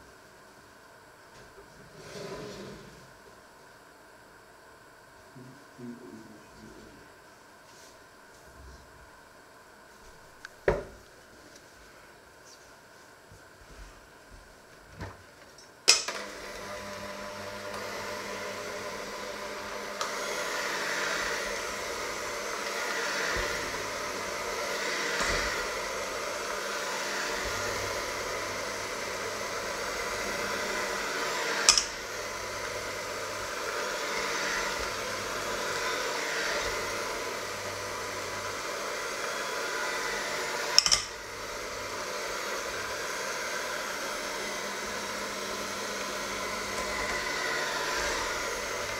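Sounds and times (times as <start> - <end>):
electric mixer motor whirring: 15.9 - 48.9.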